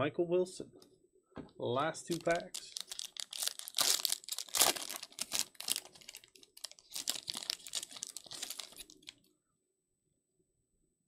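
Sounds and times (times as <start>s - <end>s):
foil wrapper crinkling and tearing: 2.1s - 9.2s.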